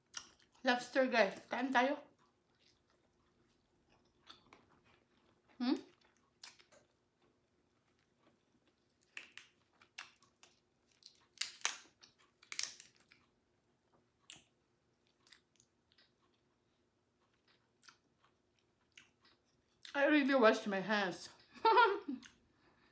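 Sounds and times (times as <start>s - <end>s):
close-up chewing: 2.1s - 19.9s
crackles and wet smacks: 8.8s - 13.2s.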